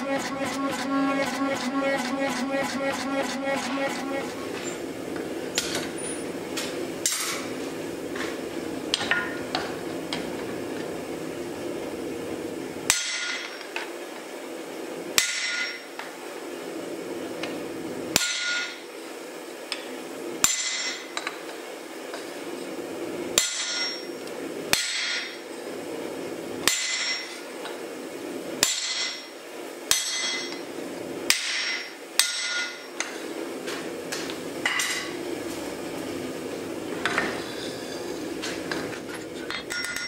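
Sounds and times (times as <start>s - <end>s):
steady low hum: 0.0s - 13.3s.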